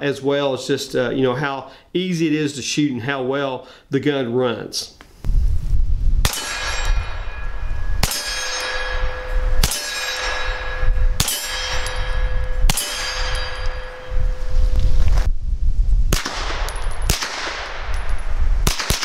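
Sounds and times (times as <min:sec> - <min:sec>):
gunshots: 0:06.2 - 0:14.0, 0:16.1 - 0:19.0
ringing metallic clang: 0:06.3 - 0:14.7.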